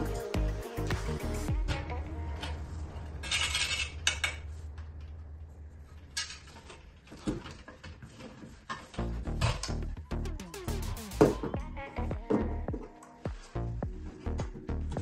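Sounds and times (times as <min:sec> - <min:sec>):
metal scooter parts clinking: 0:03.0 - 0:05.1.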